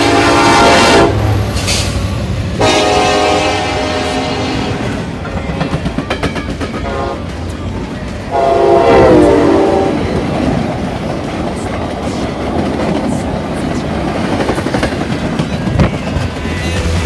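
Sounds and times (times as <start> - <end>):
train horn blast: 0.0 - 1.5, 2.6 - 5.1, 6.8 - 7.4, 8.3 - 10.3
rush of passing train cars: 0.0 - 17.0
train wheels clicking on rails: 0.0 - 17.0.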